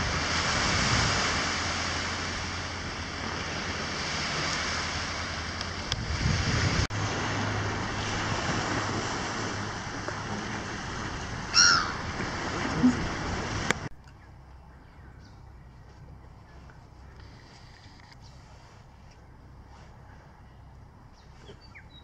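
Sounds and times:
waves washing onto pebbles: 0.0s - 13.9s
wind buffeting microphone: 0.0s - 13.9s.

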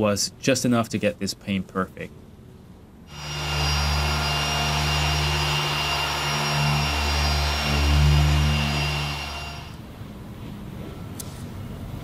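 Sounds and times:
electric polisher motor humming: 3.1s - 9.8s.

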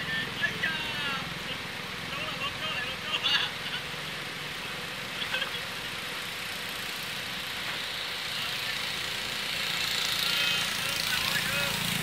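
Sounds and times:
car approaching: 0.0s - 12.0s.

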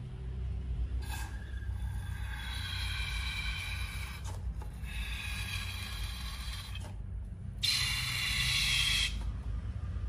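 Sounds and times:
balloon neck squealing: 1.0s - 7.0s, 7.6s - 9.3s.

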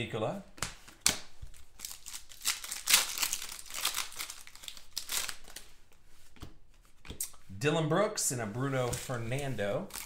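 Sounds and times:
wrapper tearing and crinkling: 1.5s - 5.7s.

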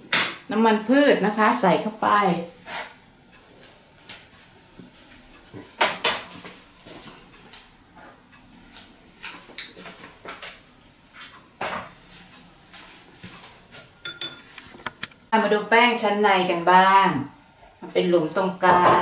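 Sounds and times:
dishes knocking: 14.0s - 14.5s
utensils clinking: 14.0s - 14.6s.

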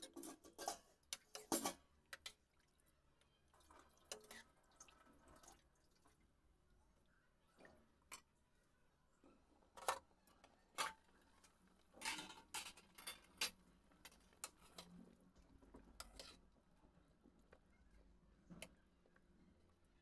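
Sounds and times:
metal ladle scraping a pan: 0.0s - 1.8s, 12.0s - 15.2s, 15.8s - 16.5s.

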